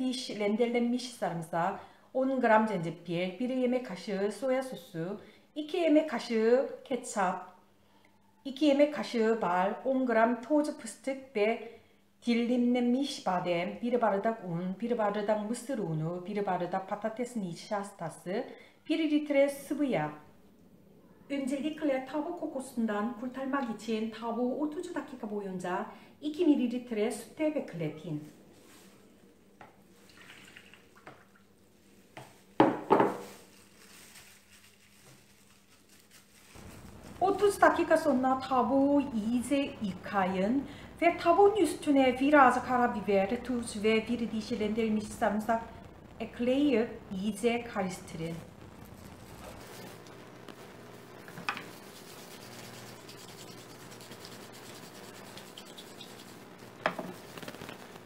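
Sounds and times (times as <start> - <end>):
milk pouring: 29.9 - 31.6, 51.2 - 57.8
pepper mill grinding: 51.2 - 58.0.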